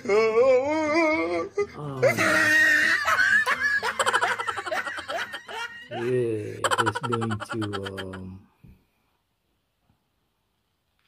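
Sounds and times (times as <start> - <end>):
man laughing heartily: 1.6 - 8.4.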